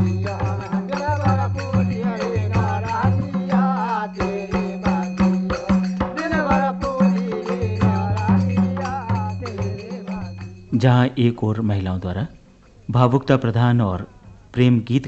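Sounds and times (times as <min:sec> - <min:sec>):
drum strokes: 0:00.0 - 0:10.8
voices singing: 0:00.0 - 0:11.3.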